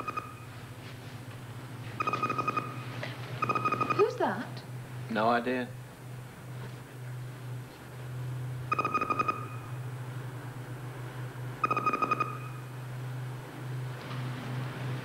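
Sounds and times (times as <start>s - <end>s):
rapid two-pitched beeping: 0.0s - 0.5s, 2.0s - 4.2s, 8.6s - 9.9s, 11.6s - 12.8s
low electronic hum: 0.0s - 15.0s.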